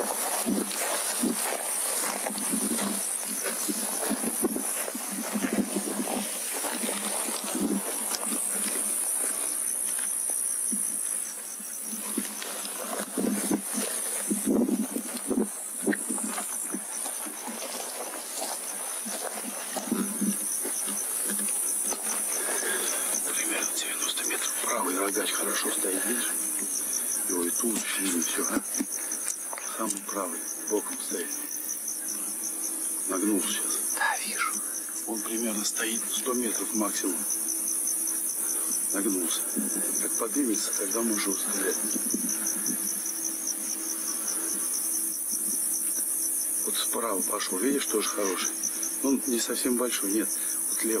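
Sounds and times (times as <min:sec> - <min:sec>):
crickets chirring: 0:00.0 - 0:51.0
rustling and bumps of handling: 0:11.9 - 0:23.6.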